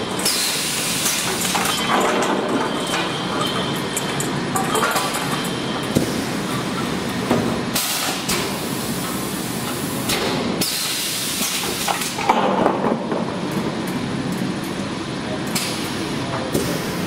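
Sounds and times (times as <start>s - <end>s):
metal clanks and knocks: 1.4s - 5.6s.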